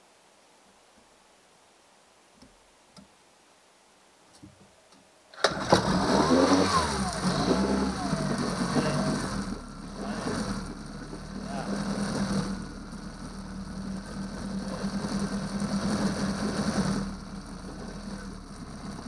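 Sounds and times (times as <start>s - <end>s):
outboard motor running: 5.5s - 19.0s.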